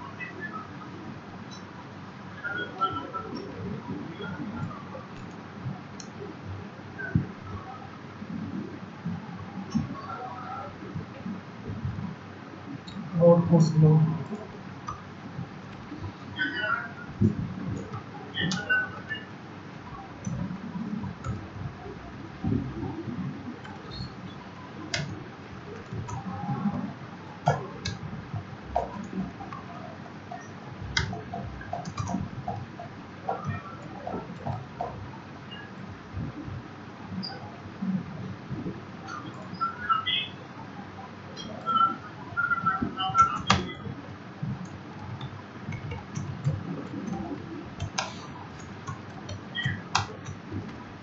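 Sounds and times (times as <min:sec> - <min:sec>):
keyboard typing: 0:02.7 - 0:06.3, 0:14.2 - 0:36.4, 0:42.4 - 0:51.0.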